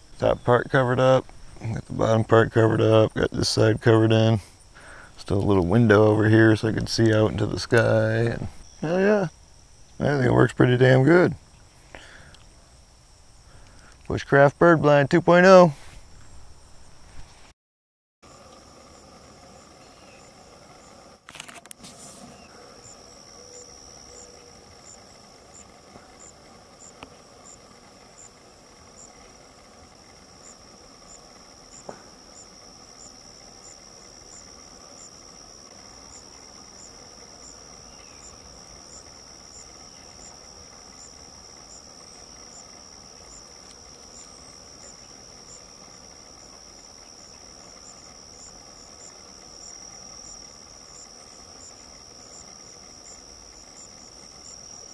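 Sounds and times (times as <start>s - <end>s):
insects trilling: 0.0s - 15.7s, 18.2s - 54.9s
faint chirp: 18.3s - 21.2s, 22.1s - 54.9s
sharp clicks: 20.2s - 54.9s.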